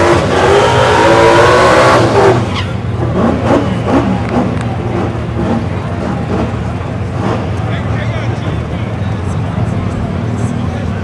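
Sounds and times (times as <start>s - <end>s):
race car engine revving high: 0.0s - 8.8s.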